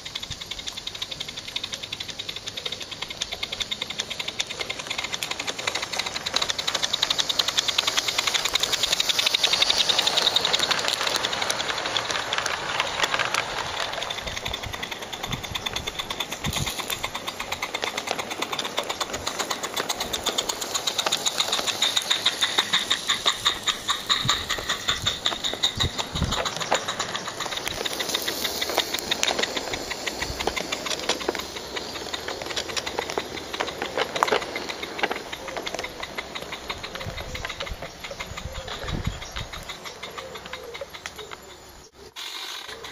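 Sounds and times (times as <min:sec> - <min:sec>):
steam hiss: 0:00.0 - 0:42.9
steam locomotive chuffing: 0:00.0 - 0:42.9
wagon wheels clicking on track: 0:00.0 - 0:42.9.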